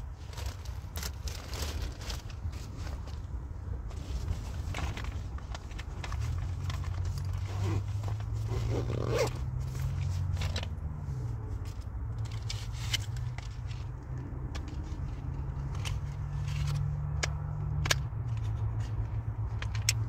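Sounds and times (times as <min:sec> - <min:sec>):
rustling in fabric bag: 0:00.0 - 0:10.6
small clicks and scrapes: 0:03.9 - 0:20.0.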